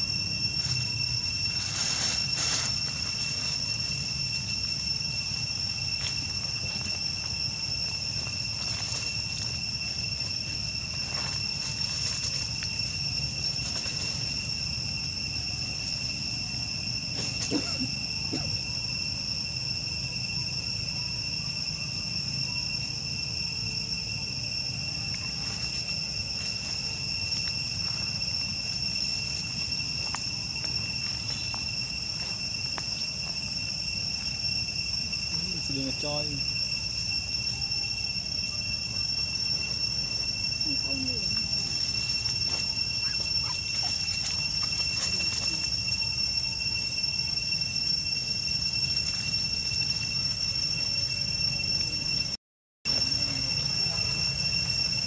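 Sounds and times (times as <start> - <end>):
insects trilling: 0.0 - 55.0.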